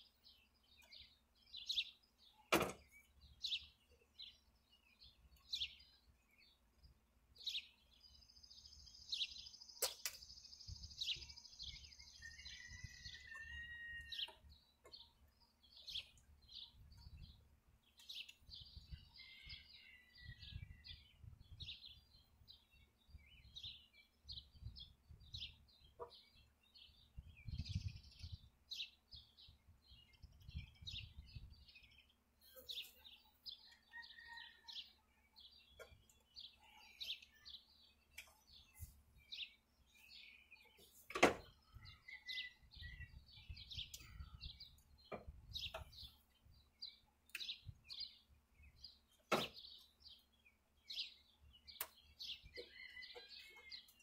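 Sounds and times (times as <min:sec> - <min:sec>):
songbirds chirping: 0:00.0 - 0:54.0
wind rumble on microphone: 0:18.5 - 0:19.2, 0:20.2 - 0:21.9, 0:24.3 - 0:25.6, 0:27.1 - 0:28.6, 0:29.4 - 0:31.8, 0:42.7 - 0:46.0.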